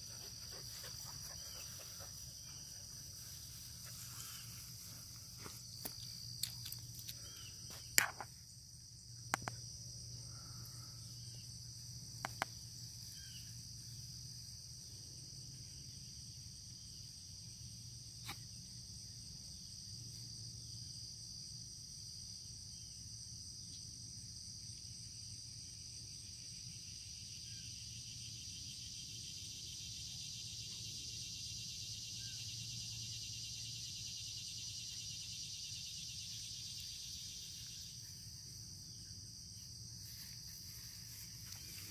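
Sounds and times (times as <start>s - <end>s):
insects chirping: 0.0s - 41.9s.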